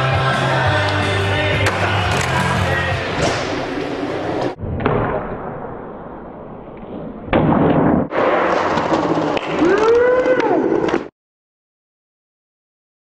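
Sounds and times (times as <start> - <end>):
skateboard landing: 3.1 - 11.1
skateboard wheels rolling: 8.1 - 11.1.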